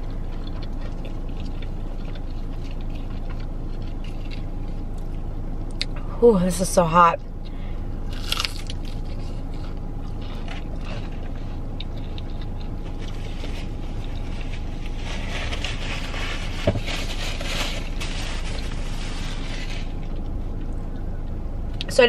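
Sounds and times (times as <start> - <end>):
paper napkin rustling: 12.8 - 20.0.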